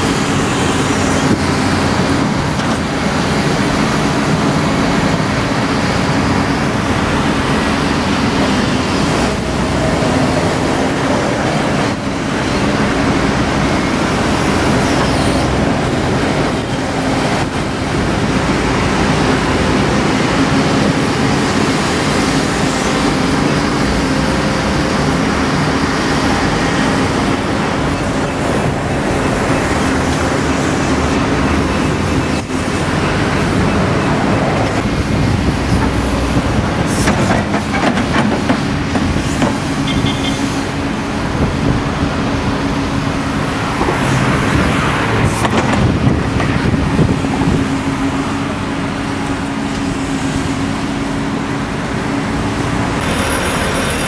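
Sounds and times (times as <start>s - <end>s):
diesel engine droning: 0.0s - 54.0s
machinery knocks and clanks: 34.6s - 40.2s, 45.2s - 47.7s.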